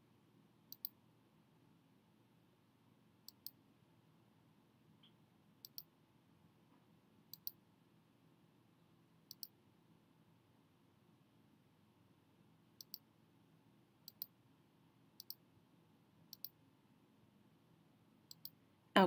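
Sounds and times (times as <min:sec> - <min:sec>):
computer mouse clicks: 0:00.7 - 0:01.0, 0:03.3 - 0:03.6, 0:05.0 - 0:05.9, 0:07.3 - 0:07.6, 0:09.3 - 0:09.6, 0:12.8 - 0:13.1, 0:14.0 - 0:14.4, 0:15.2 - 0:15.4, 0:16.3 - 0:16.6, 0:18.3 - 0:18.6.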